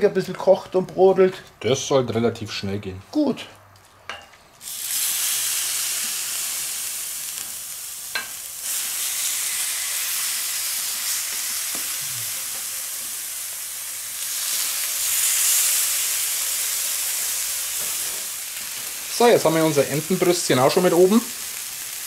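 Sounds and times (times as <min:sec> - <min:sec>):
meat sizzling on hot plate: 0:04.6 - 0:22.0.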